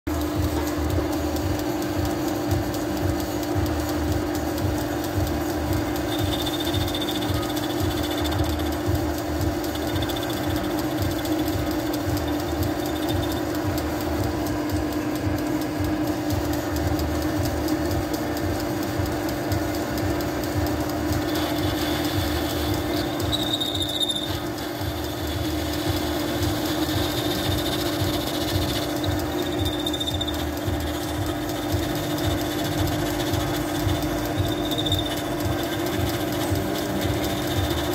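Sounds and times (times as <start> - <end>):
metal lathe cutting: 0.1 - 37.9.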